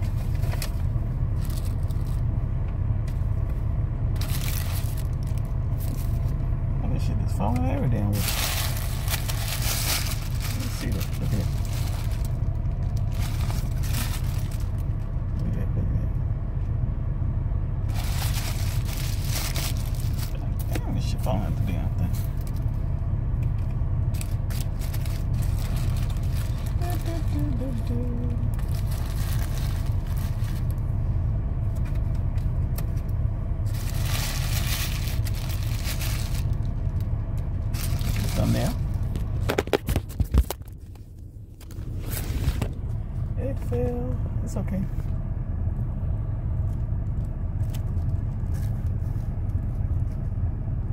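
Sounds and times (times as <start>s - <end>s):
car rumble inside cabin: 0.0s - 50.9s
paper wrapper rustling: 4.2s - 6.3s, 8.2s - 14.9s, 17.9s - 20.4s, 24.1s - 27.8s, 28.5s - 30.8s, 33.7s - 36.8s, 37.7s - 41.0s.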